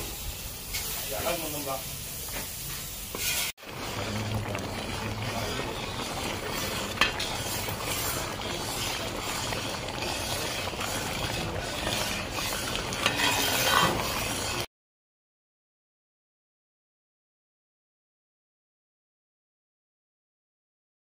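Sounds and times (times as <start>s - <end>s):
steady hiss: 0.0s - 10.6s
ladle stirring a pot: 2.2s - 14.7s.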